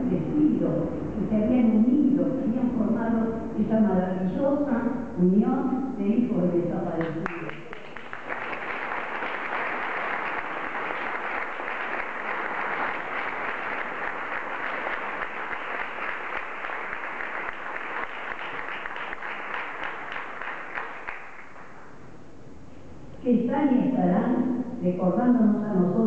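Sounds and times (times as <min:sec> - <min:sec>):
audience applauding: 0:07.2 - 0:21.8.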